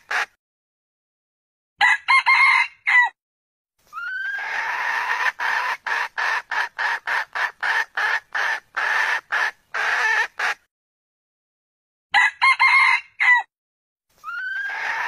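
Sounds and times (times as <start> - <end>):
junglefowl clucking call: 0.0 - 0.3, 4.0 - 10.7, 14.2 - 15.0.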